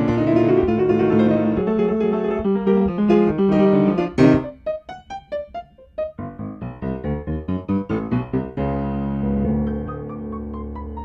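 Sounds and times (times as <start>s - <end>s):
piano chord and high notes: 0.0s - 11.0s.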